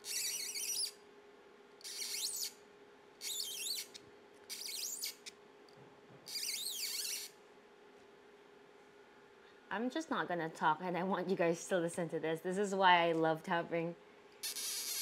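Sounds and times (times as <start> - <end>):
hand tap squeaking in acrylic: 0.0 - 1.0, 1.8 - 2.6, 3.2 - 5.4, 6.2 - 7.4.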